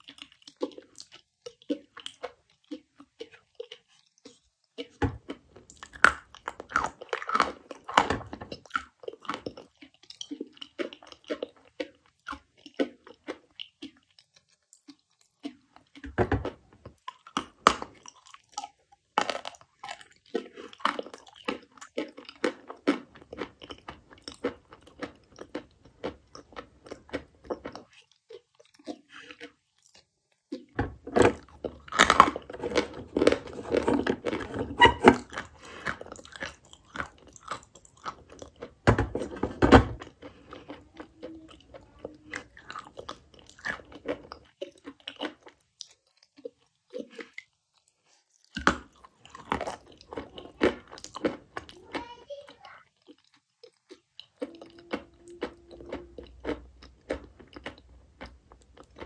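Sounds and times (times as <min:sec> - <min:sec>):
chalk crunching between teeth: 0:31.4 - 0:39.4.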